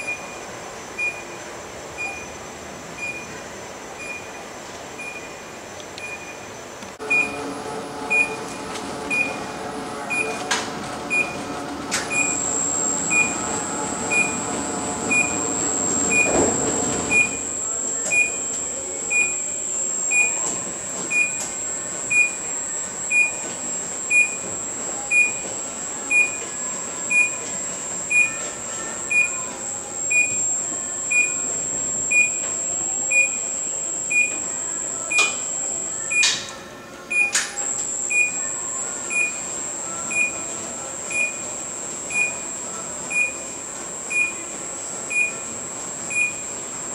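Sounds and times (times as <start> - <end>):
steady high whine: 6.9 - 36.4
drive motors humming: 7.0 - 36.2
warning beeper: 7.0 - 36.3.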